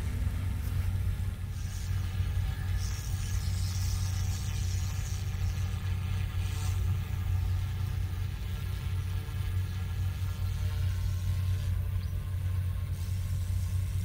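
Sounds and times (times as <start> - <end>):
helicopter rotor hum: 0.0 - 14.0
high motor whine: 0.0 - 14.0.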